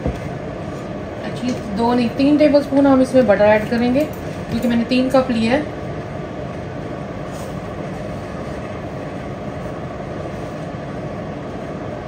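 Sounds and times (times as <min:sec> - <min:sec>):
low rumbling background noise: 0:00.0 - 0:12.0.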